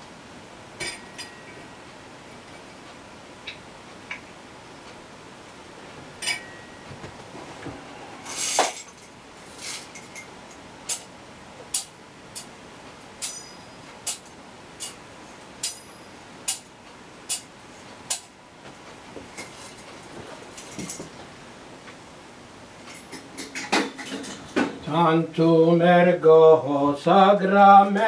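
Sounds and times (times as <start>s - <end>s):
scraping clink: 13.2s - 13.8s
sharp clinks: 13.2s - 13.8s.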